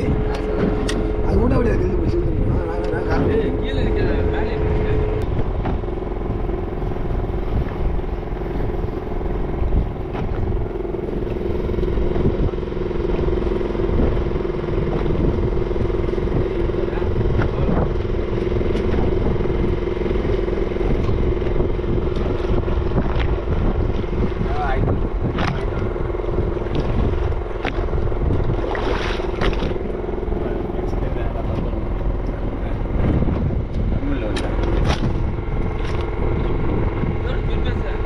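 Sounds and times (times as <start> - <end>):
boat engine running: 0.0 - 38.0.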